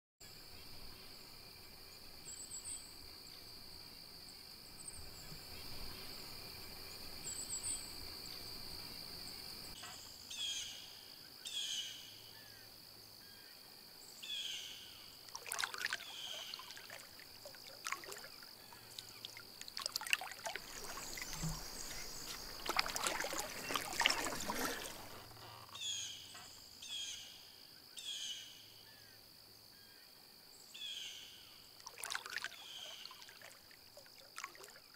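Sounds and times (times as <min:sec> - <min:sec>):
water splashing and trickling: 0:15.2 - 0:25.8, 0:31.8 - 0:34.9
bird calling: 0:15.4 - 0:27.2.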